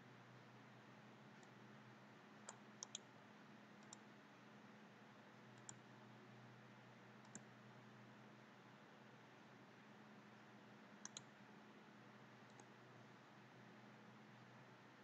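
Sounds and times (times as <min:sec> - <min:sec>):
faint low hum: 0:00.0 - 0:15.0
computer mouse clicks: 0:02.4 - 0:03.1, 0:03.8 - 0:04.1, 0:05.5 - 0:05.9, 0:07.2 - 0:07.5, 0:11.0 - 0:11.3, 0:12.5 - 0:12.8.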